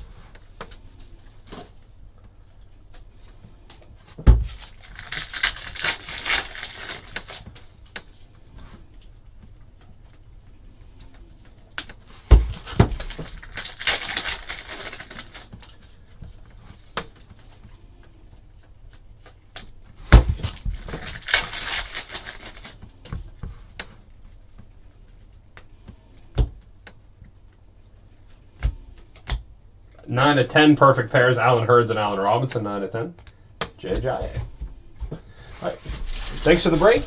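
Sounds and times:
cards rustling: 4.5 - 8.2, 11.2 - 19.7, 20.3 - 23.0, 35.6 - 37.0.

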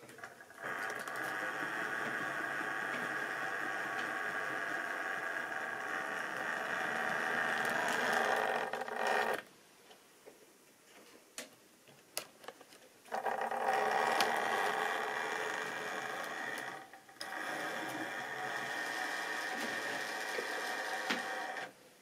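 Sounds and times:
model train whirring rumble: 0.6 - 9.4, 13.1 - 21.7.

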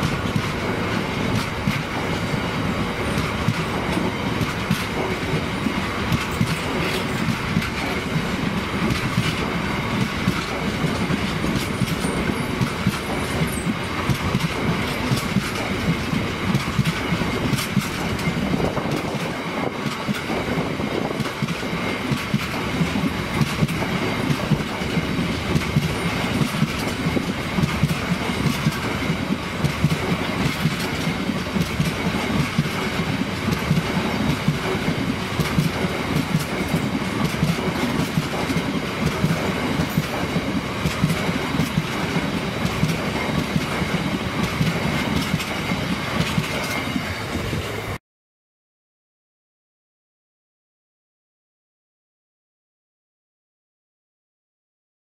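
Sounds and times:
train wheels clattering over rail joints: 0.0 - 47.1.

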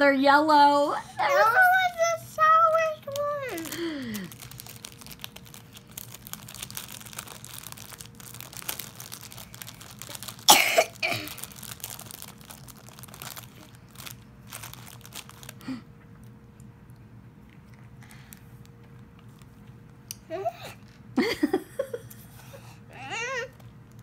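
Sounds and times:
faint steady hum: 0.0 - 24.0
candy wrapper crinkling: 1.3 - 17.0
loud cough: 10.5 - 11.4.

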